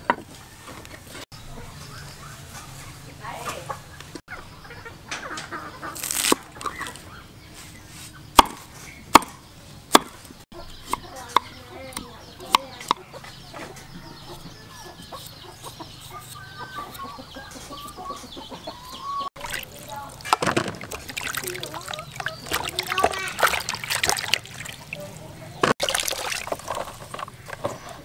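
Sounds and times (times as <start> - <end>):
chickens clucking: 0.0 - 9.3, 10.5 - 28.0
knife chopping on wooden board: 8.4 - 10.2.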